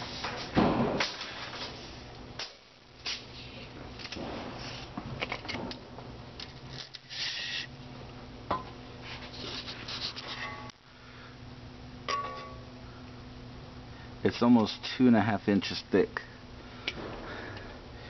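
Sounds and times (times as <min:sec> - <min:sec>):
steady low hum: 0:00.0 - 0:18.0
objects being handled: 0:08.6 - 0:10.8.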